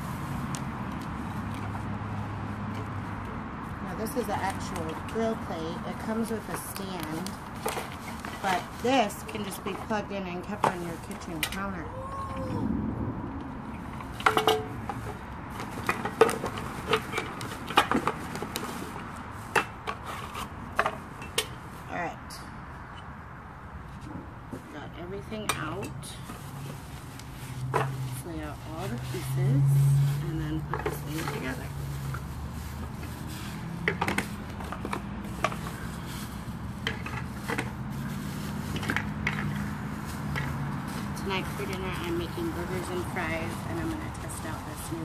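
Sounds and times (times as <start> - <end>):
plastic bags being unwrapped: 31.3 - 44.9.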